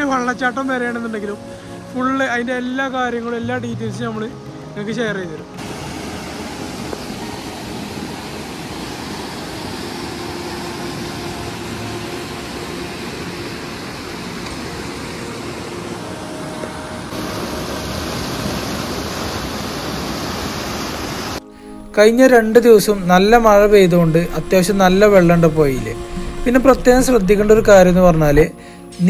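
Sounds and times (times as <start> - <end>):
river water rushing over rocks: 5.5 - 21.8.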